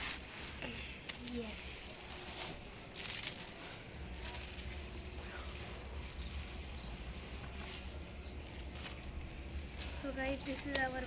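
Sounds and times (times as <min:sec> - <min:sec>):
plastic wrapping rustling: 0:00.0 - 0:11.0.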